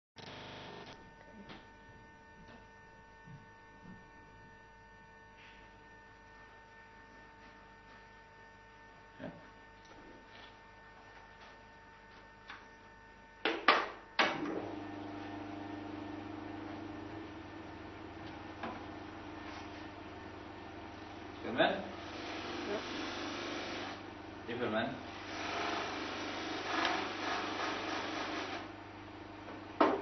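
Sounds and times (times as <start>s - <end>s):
buffing machine motor humming: 0.2s - 1.0s, 14.4s - 29.3s
faint electrical hum: 0.2s - 30.0s.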